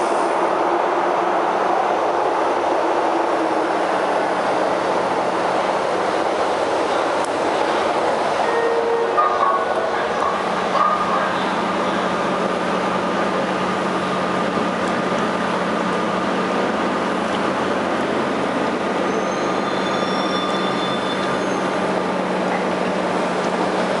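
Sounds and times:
train wheels and motors rumbling: 0.0 - 24.0.

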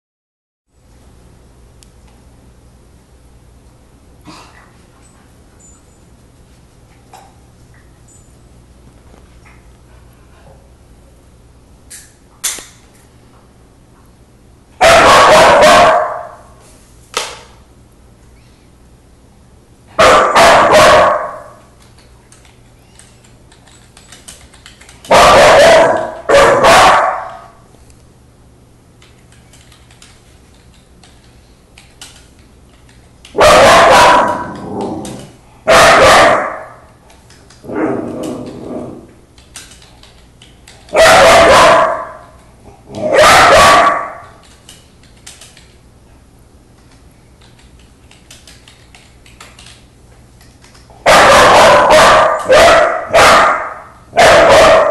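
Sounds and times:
puppy barking: 14.8 - 16.4, 19.9 - 21.6, 25.1 - 27.6, 33.3 - 34.6, 35.7 - 36.8, 40.9 - 44.4, 51.0 - 54.9.

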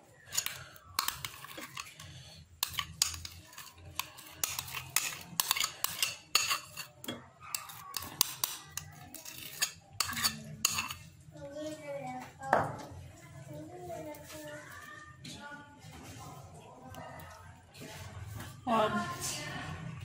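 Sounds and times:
metal spoon scraping ceramic bowl: 0.1 - 11.2.

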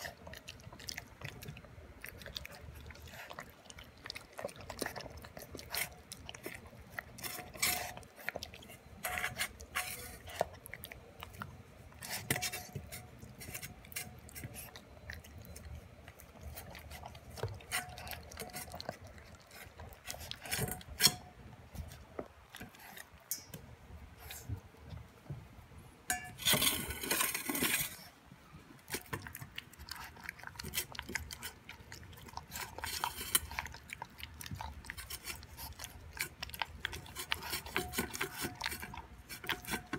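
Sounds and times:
dog chewing: 0.0 - 25.1, 27.4 - 39.9
teeth clinking on metal bowl: 30.0 - 39.9.

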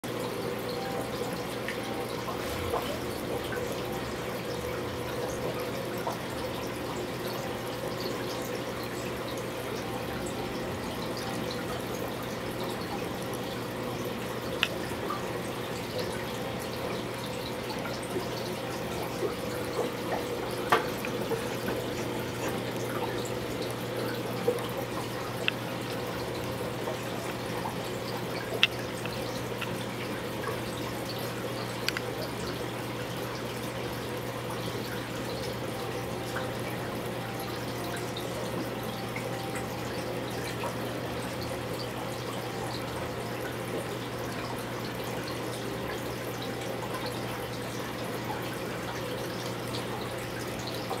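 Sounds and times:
aquarium filter humming: 0.0 - 51.0
drip-like ticks: 0.1 - 51.0
water trickling and splashing: 0.1 - 51.0.

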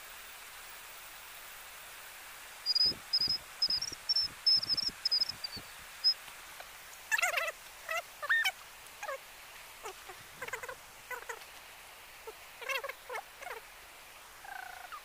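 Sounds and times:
faint outdoor hiss: 0.0 - 15.0
small animal chirping: 2.7 - 6.2, 7.1 - 9.2, 9.8 - 11.4, 12.6 - 13.6, 14.4 - 15.0.

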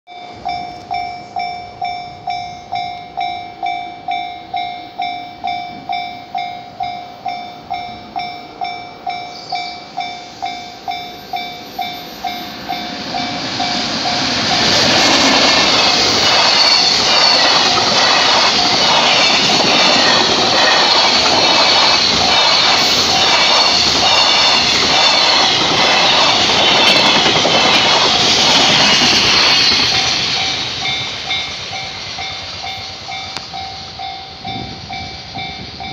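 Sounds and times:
level crossing warning bell dinging: 0.1 - 35.9
freight train rumbling and clattering: 12.3 - 35.9.

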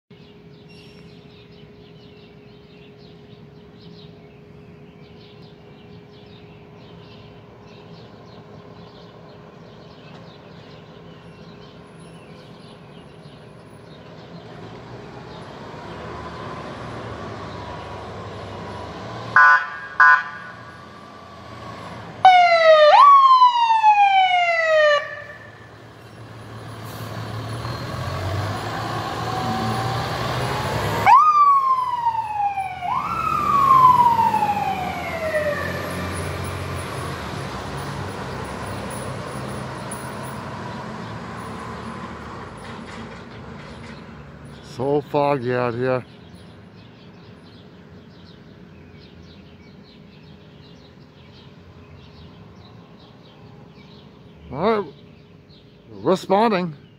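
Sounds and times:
truck engine: 13.8 - 46.0
fire engine siren wail: 19.3 - 25.9, 27.1 - 39.0.

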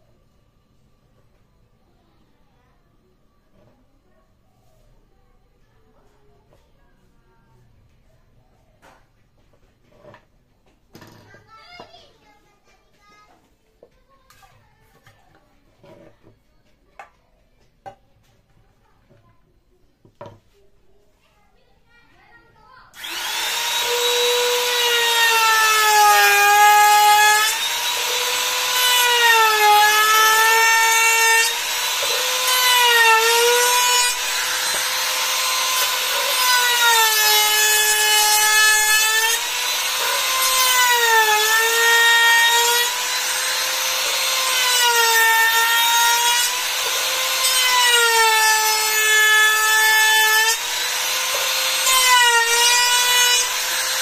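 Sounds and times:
router cutting wood: 23.0 - 54.0.

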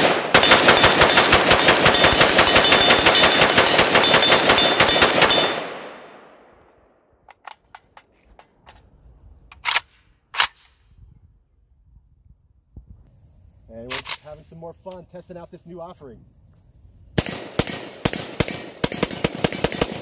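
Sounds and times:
rifle gunshots: 0.0 - 6.5, 17.2 - 20.0
rifle handling clicks: 7.2 - 8.9, 9.5 - 10.8, 13.9 - 14.3.

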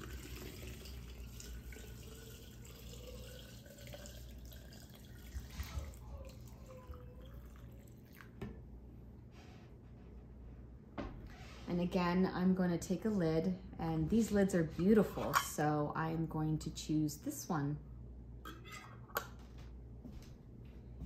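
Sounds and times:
water dripping: 0.0 - 5.5
water pouring into glass jar: 0.0 - 8.4.

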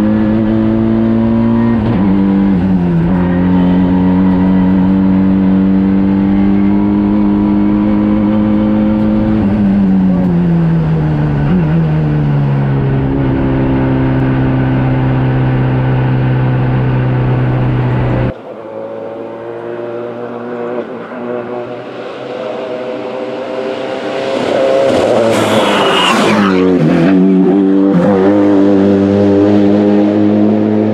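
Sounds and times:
car engine at high revs: 0.0 - 30.9
car passing by: 18.5 - 30.9.

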